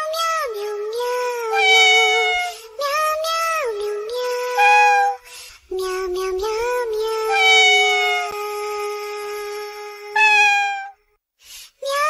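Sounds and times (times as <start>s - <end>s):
synthetic sung meowing: 1.3s - 2.6s, 3.2s - 5.2s, 5.8s - 9.0s, 9.6s - 11.0s.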